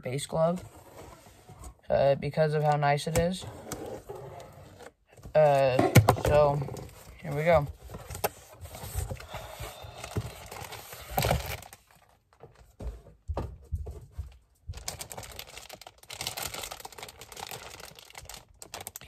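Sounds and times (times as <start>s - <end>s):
plastic bag crinkling: 9.1s - 12.2s, 14.7s - 19.0s.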